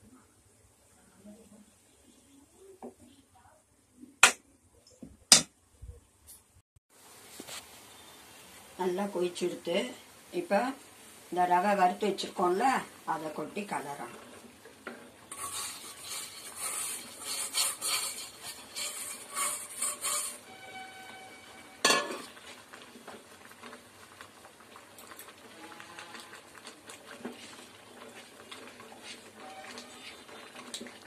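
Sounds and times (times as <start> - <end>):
wooden spatula stirring and scraping: 12.6 - 31.0.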